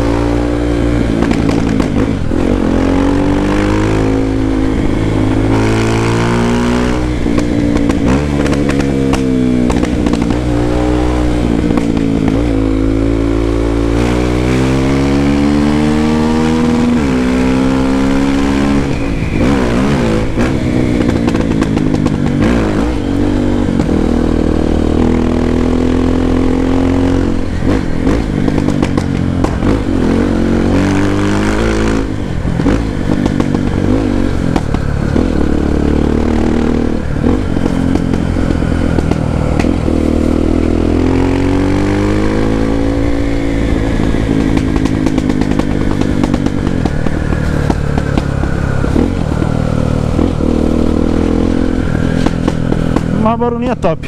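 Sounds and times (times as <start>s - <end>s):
motorcycle engine revving: 0.0s - 54.0s
exhaust pops: 1.1s - 2.4s, 37.0s - 40.6s, 43.0s - 51.2s.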